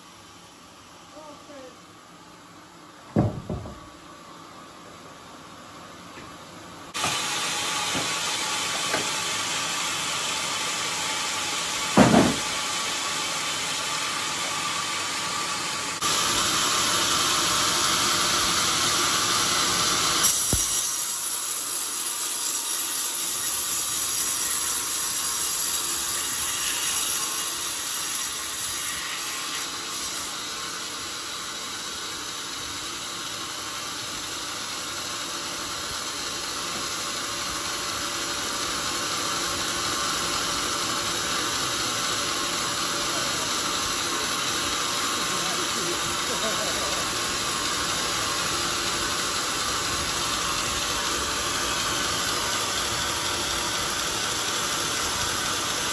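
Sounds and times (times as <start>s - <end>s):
heavy thump: 3.1s - 3.8s
band sawmill cutting log: 6.1s - 55.9s.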